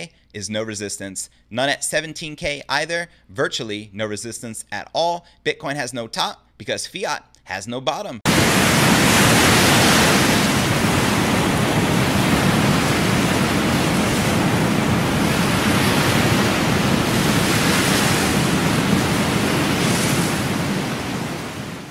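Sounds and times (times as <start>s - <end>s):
ocean surf rushing: 8.3s - 21.9s.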